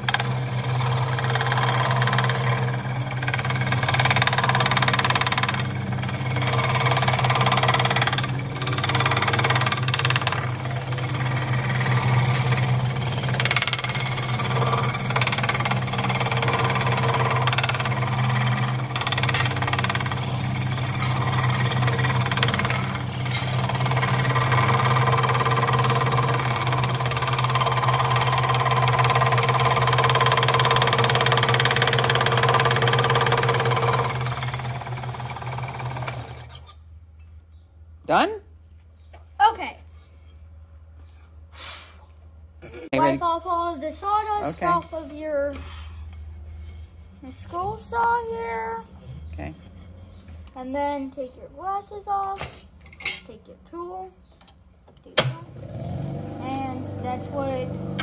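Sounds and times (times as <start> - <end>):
scroll saw motor humming: 0.0 - 36.7
saw blade cutting wood: 0.0 - 36.8.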